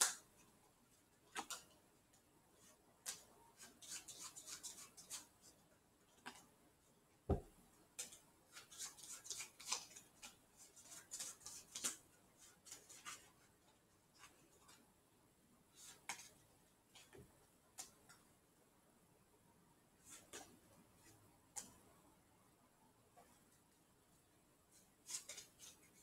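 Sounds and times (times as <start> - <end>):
playing cards snapping: 1.3 - 1.7.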